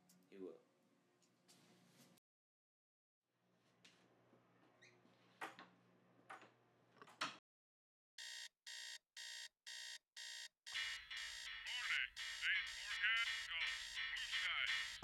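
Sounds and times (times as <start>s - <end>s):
alarm clock beeping: 8.2s - 15.0s.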